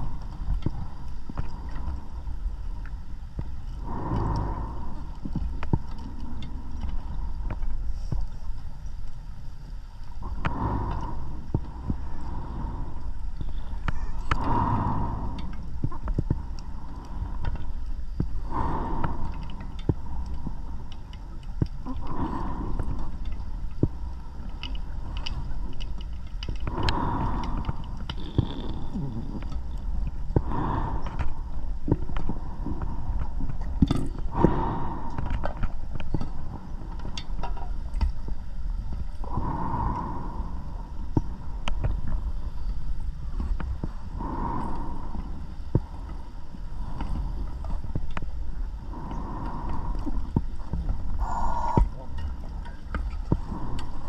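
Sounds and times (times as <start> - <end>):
underwater low rumble: 0.0 - 54.0
exhaled bubbles gurgling: 26.6 - 36.9, 46.7 - 54.0.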